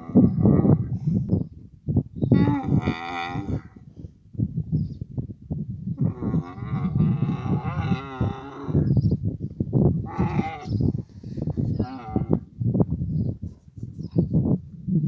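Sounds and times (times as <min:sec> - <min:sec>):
camel groaning call: 0:00.0 - 0:01.0, 0:02.3 - 0:03.9, 0:06.0 - 0:09.0, 0:10.0 - 0:12.5
camel grunting: 0:00.0 - 0:01.2, 0:02.3 - 0:04.0, 0:06.0 - 0:09.0, 0:10.0 - 0:12.5.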